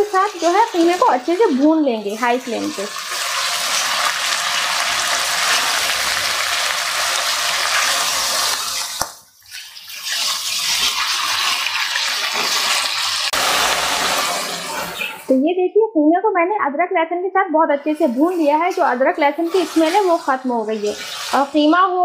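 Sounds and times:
mince sizzling in hot oil: 0:00.0 - 0:15.3, 0:18.0 - 0:21.9
spatula stirring in pan: 0:18.2 - 0:21.5.

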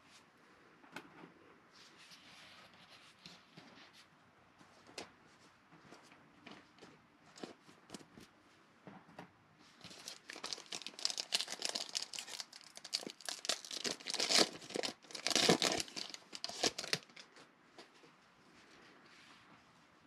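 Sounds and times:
plastic wrapper tearing and crinkling: 0:09.8 - 0:17.3.

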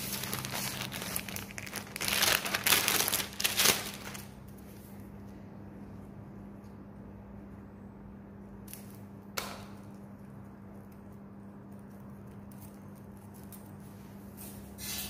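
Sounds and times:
cable rustling: 0:00.0 - 0:04.3
steady low hum: 0:00.0 - 0:15.0.

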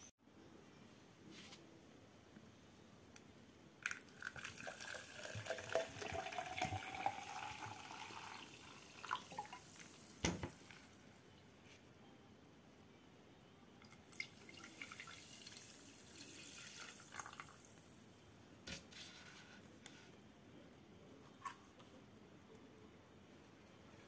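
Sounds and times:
sparkling water pouring into jug: 0:03.8 - 0:11.0, 0:13.8 - 0:18.0.

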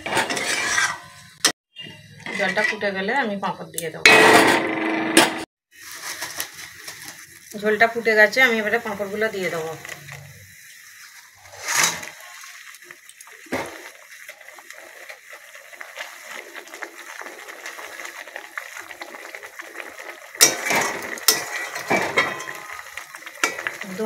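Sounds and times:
metal spatula scraping pan: 0:00.0 - 0:01.5, 0:02.2 - 0:03.1, 0:11.0 - 0:12.6, 0:20.4 - 0:22.8
gravy simmering in a pan: 0:09.4 - 0:24.0.

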